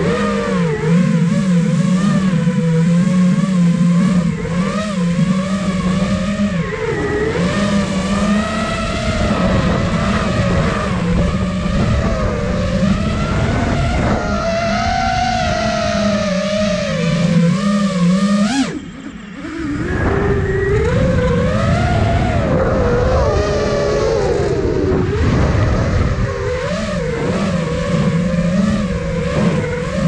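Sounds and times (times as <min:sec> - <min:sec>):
quadcopter motors whining: 0:00.0 - 0:30.0.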